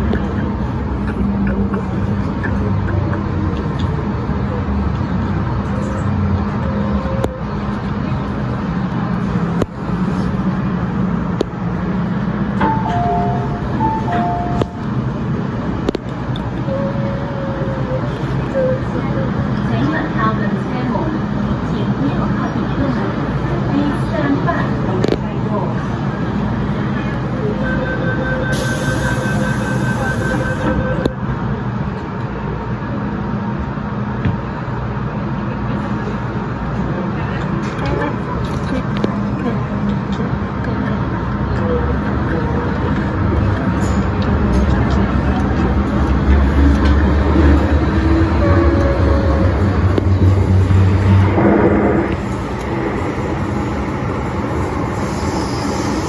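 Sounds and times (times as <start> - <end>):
train rumbling through tunnel: 0.0 - 56.0
steady whine: 45.8 - 56.0.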